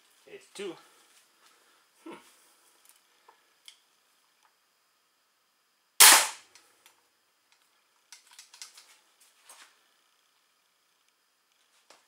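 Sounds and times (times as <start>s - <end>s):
crossbow shot crack: 6.0s - 6.5s.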